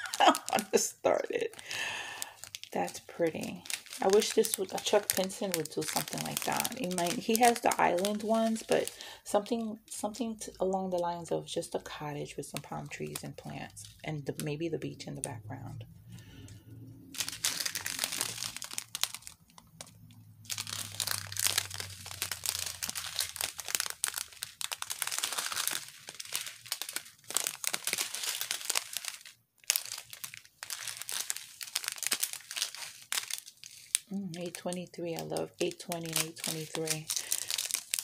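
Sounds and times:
plastic bags crinkling: 0.0s - 38.0s.

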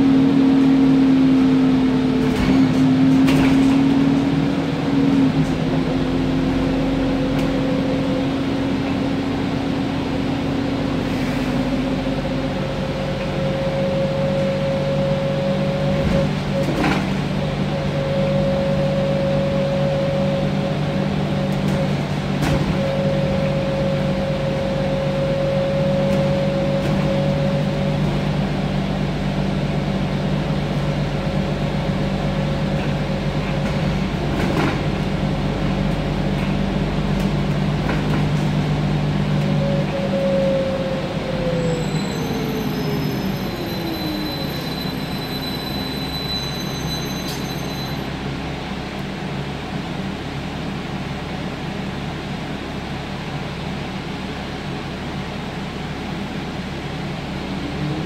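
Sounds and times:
bus engine drone and whine: 0.0s - 58.0s
second engine tone: 5.1s - 34.6s, 38.7s - 48.5s.

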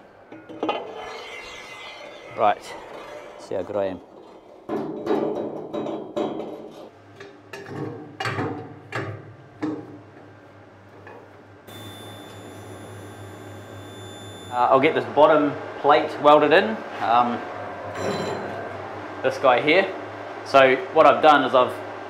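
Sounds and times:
welding arc humming: 11.7s - 15.6s.

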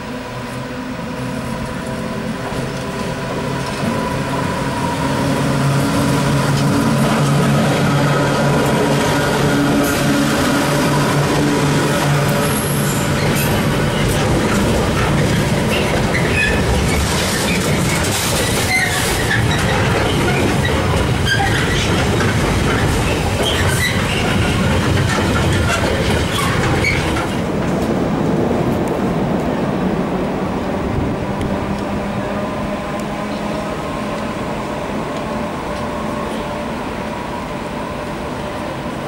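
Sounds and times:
train wheels rumbling on track: 0.0s - 39.0s
wheel squeals and clicks: 12.3s - 27.3s.

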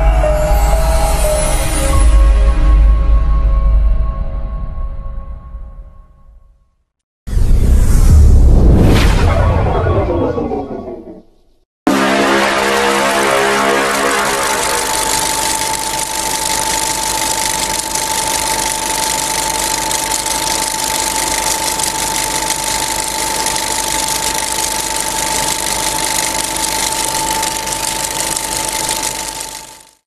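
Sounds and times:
machine drone with high whine: 7.3s - 30.0s.

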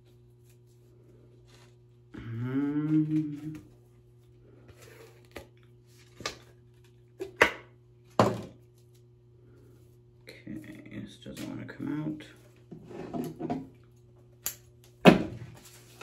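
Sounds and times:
faint steady hum: 0.0s - 16.0s
person humming: 2.1s - 3.8s.

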